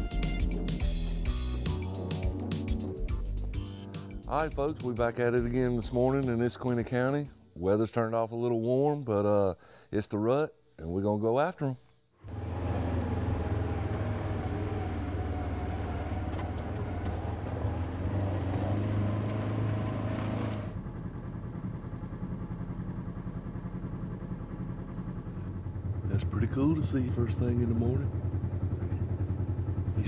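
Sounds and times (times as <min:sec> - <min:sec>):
vehicle engine drone: 0:12.3 - 0:30.0.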